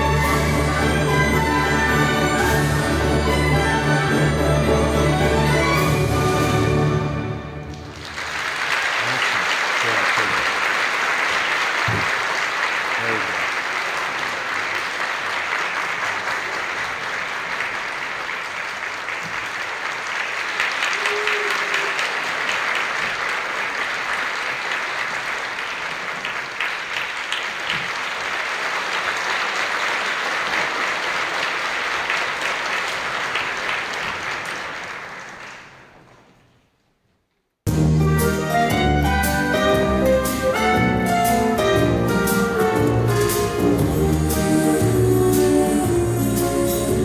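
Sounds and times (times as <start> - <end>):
audience applauding: 7.6 - 36.5.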